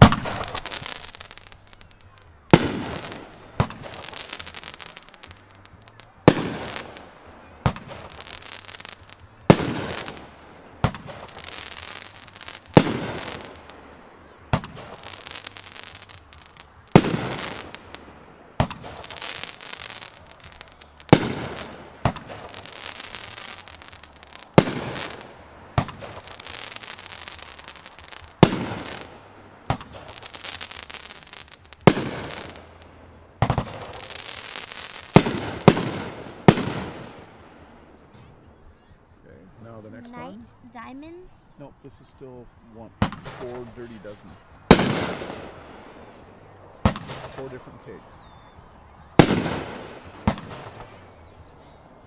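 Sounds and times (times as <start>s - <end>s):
firework pops: 0.0s - 13.7s, 14.5s - 18.0s, 18.6s - 29.1s, 29.7s - 32.6s, 33.4s - 37.4s, 44.7s - 45.6s, 46.8s - 48.4s, 49.2s - 51.2s
firework bangs: 0.0s - 38.2s, 42.8s - 52.0s.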